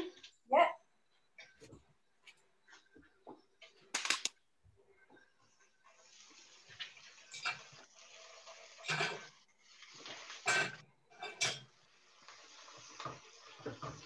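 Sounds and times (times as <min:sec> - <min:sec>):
frying pan and utensils clattering: 0:06.6 - 0:14.0.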